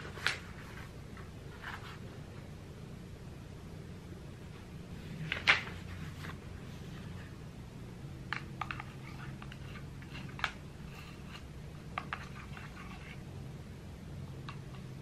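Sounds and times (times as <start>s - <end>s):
paper rustling: 0.0s - 2.1s, 5.0s - 7.2s
low room hum: 0.0s - 15.0s.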